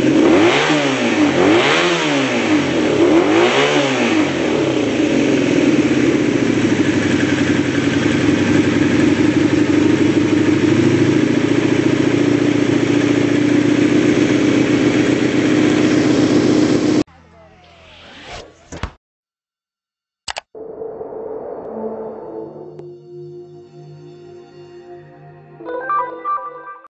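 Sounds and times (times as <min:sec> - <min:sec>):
motorcycle engine revving: 0:00.0 - 0:17.1.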